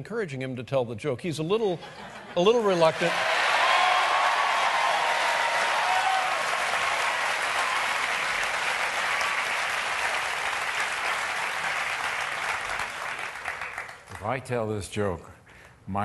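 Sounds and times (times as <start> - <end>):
audience applauding: 2.9 - 14.4.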